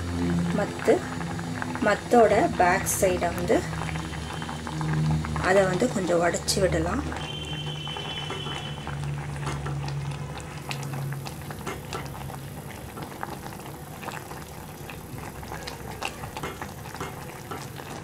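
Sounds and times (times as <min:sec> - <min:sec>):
low hum: 0:00.0 - 0:12.9
porridge bubbling and popping in a pot: 0:00.0 - 0:18.0.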